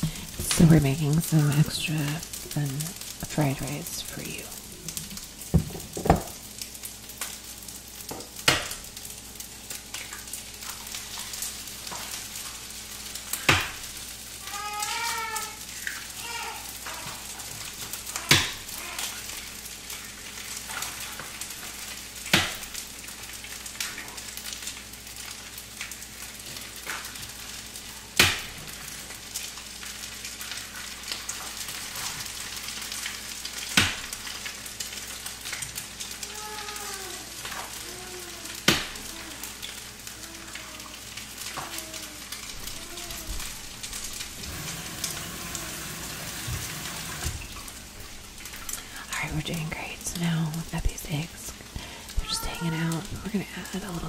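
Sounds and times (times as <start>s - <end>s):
rice sizzling in a frying pan: 0.0s - 54.0s.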